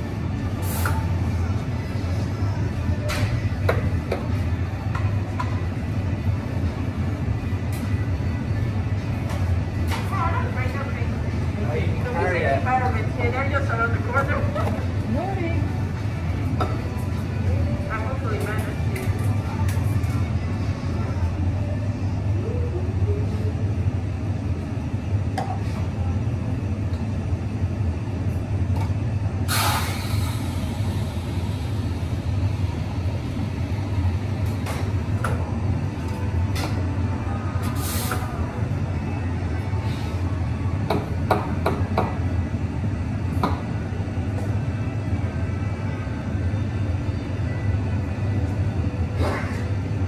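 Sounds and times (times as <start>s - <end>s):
steady low hum: 0.0s - 50.0s
steam wand hissing: 29.5s - 31.8s.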